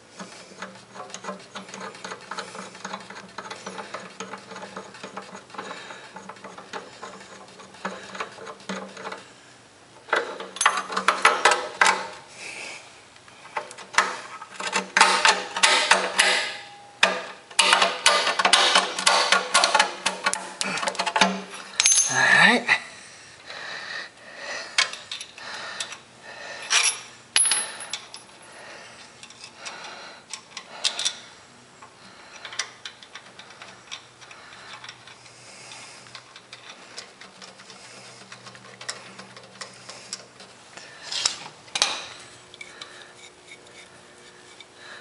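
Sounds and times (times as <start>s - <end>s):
hand tools clinking on metal: 10.6s - 11.6s, 20.8s - 22.5s, 26.6s - 28.4s.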